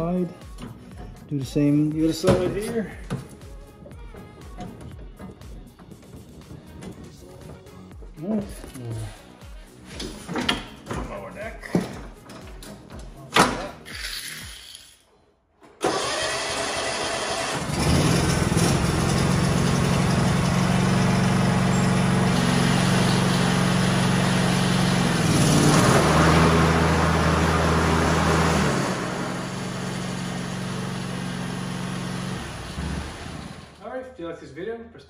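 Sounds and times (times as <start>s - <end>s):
lawn tractor engine running: 15.8s - 33.8s.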